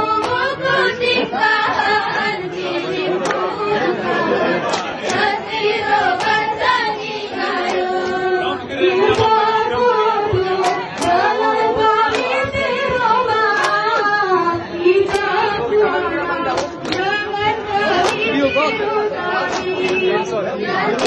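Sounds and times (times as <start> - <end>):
women singing a chant in unison: 0.0 - 21.0
sharp hand claps: 0.2 - 0.5, 3.2 - 3.5, 4.6 - 5.3, 6.1 - 6.5, 9.1 - 9.4, 10.3 - 11.4, 12.0 - 14.0, 15.0 - 15.4, 16.5 - 17.1, 17.9 - 18.3, 19.4 - 20.1.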